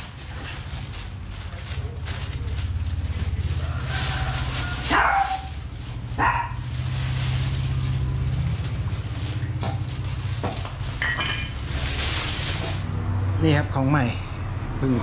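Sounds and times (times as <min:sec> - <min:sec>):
plastic bag rustling: 0:00.0 - 0:13.2.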